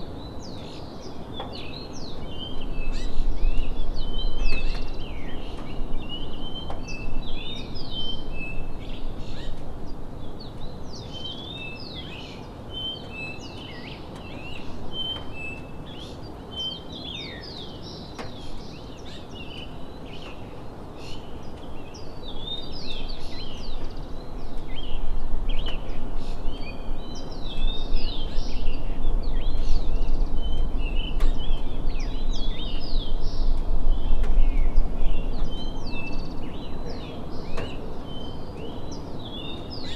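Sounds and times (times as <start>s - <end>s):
birds chirping: 0.0s - 39.9s
low outdoor rumble: 21.5s - 39.2s.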